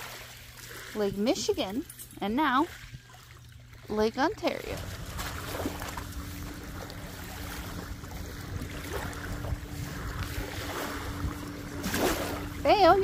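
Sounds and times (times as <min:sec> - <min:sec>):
low hum: 0:00.0 - 0:13.0
small water splashes: 0:00.0 - 0:13.0
water lapping on pebble shore: 0:00.0 - 0:13.0
wind rumbling on microphone: 0:04.4 - 0:13.0.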